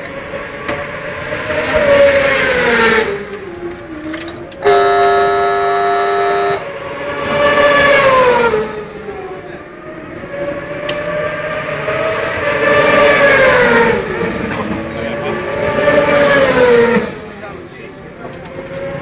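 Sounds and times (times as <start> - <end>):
racing motorcycle engines revving: 4.6 - 8.6.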